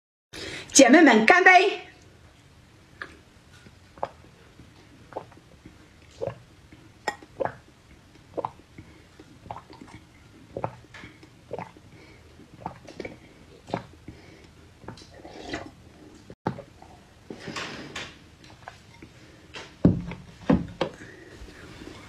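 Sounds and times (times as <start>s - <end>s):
person gulping wet swallows: 3.9s - 17.0s.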